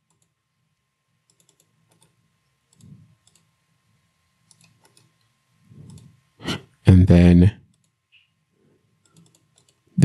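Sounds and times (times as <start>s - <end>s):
computer mouse and keyboard clicks: 0.0s - 0.3s, 1.3s - 3.5s, 4.4s - 6.2s, 7.7s - 8.0s, 9.0s - 9.9s.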